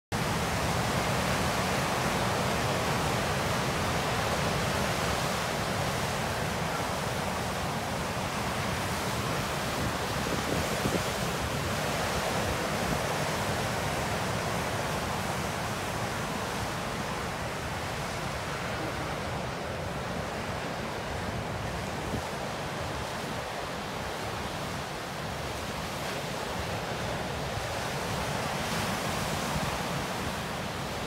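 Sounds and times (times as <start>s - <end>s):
waves breaking on shore: 0.2s - 31.0s.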